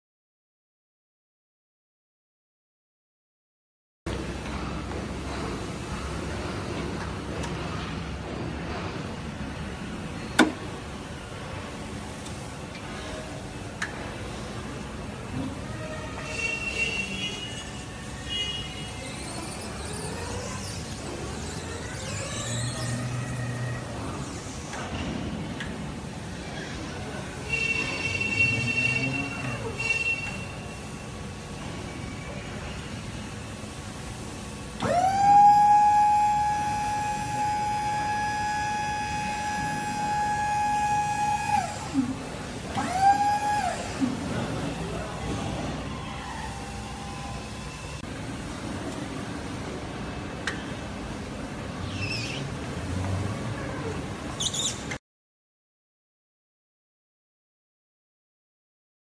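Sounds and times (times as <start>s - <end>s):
hydraulic pump motor whining: 19.1s - 24.9s, 34.7s - 48.0s
electric motor whining: 34.8s - 42.2s.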